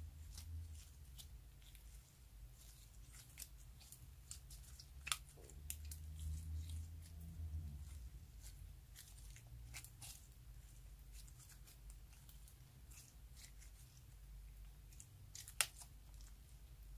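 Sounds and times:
slime crackling and popping: 14.9 - 16.2.

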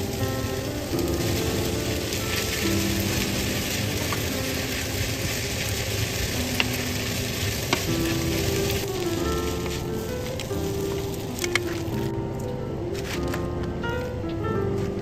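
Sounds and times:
noodles sizzling in frying pan: 0.0 - 12.1
spatula stirring food: 0.1 - 12.0.

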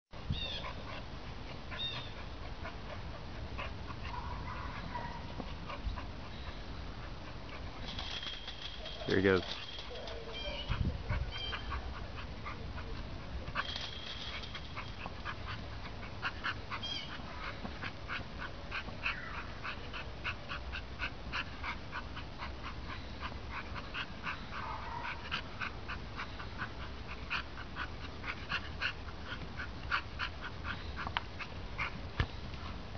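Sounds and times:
dog whimpering and yipping: 8.9 - 12.0.

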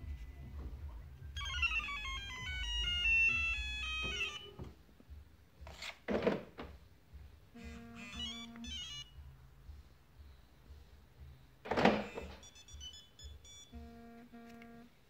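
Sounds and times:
car alarm beeping tune: 1.4 - 4.7, 7.6 - 9.3, 12.2 - 14.9.

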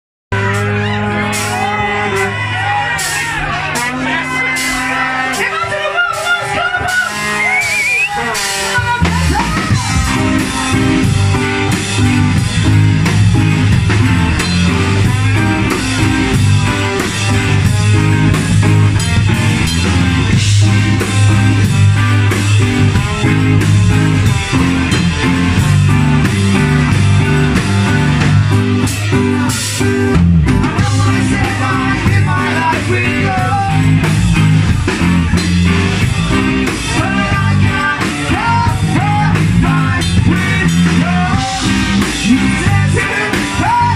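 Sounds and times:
ska-punk band playing live: 0.3 - 43.9
person singing: 28.9 - 34.2, 36.6 - 43.9.

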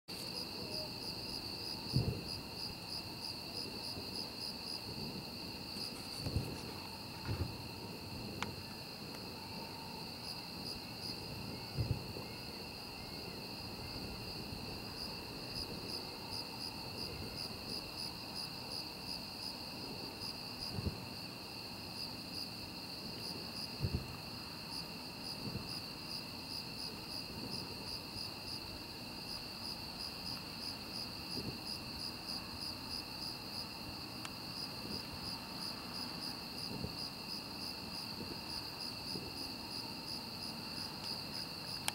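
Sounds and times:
crickets chirping: 0.1 - 41.9
distant fireworks booms: 0.3 - 18.2, 19.8 - 21.2, 23.0 - 24.2, 25.3 - 25.9, 31.2 - 32.6, 34.6 - 41.9.

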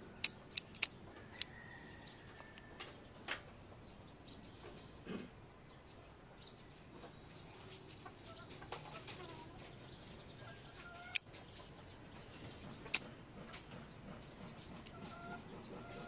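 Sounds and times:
sharp click: 0.2 - 1.5, 12.9 - 13.1
small clicks: 0.2 - 1.6
chickens clucking: 6.4 - 16.0.

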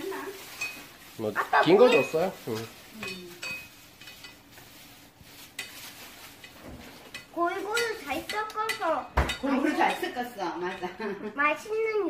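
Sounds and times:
child's voice: 7.3 - 9.2, 11.2 - 12.0.

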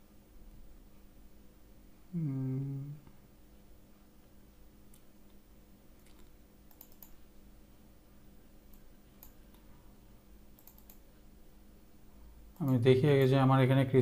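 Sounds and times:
low steady hum: 0.0 - 14.0
computer mouse clicks: 6.0 - 7.2, 8.7 - 9.7, 10.5 - 11.1.

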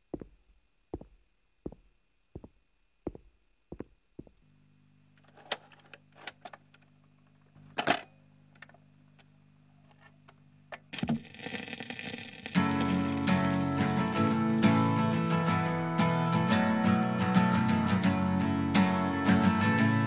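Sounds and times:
acoustic guitar strumming: 12.5 - 20.0.

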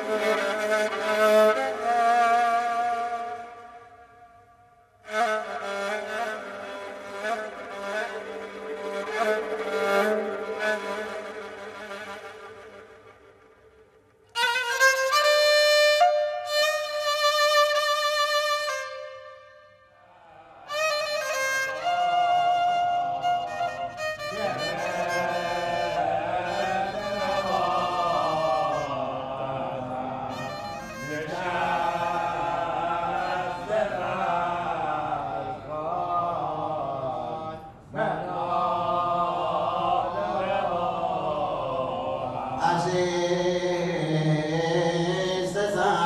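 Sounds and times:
slow mournful violin melody: 5.0 - 13.0, 14.3 - 19.7, 20.6 - 29.3, 30.2 - 34.2
man chanting a lament: 24.3 - 46.0.

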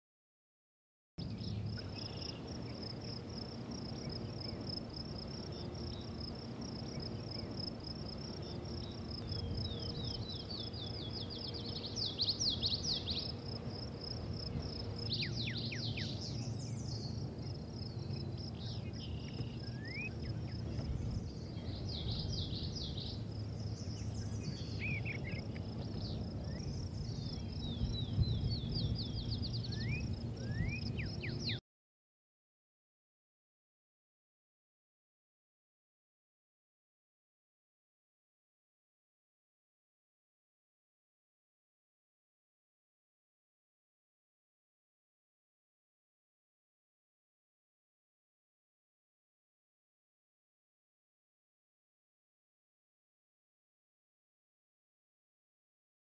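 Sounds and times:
birds chirping: 1.2 - 31.6
low steady rumble: 1.2 - 31.6.

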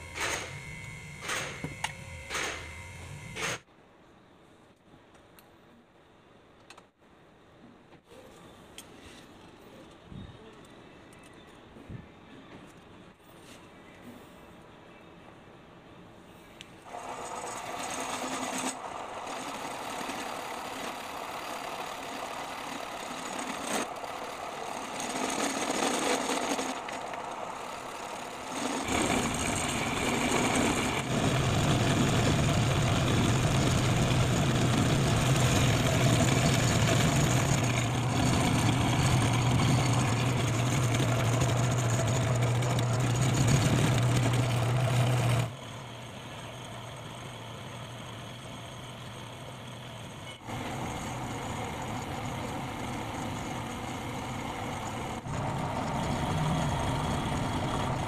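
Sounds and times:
lathe motor humming: 16.9 - 58.0.

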